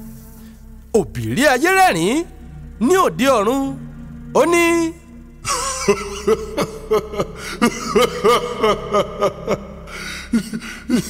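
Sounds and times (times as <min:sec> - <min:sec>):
man laughing heartily: 0:05.4 - 0:11.0.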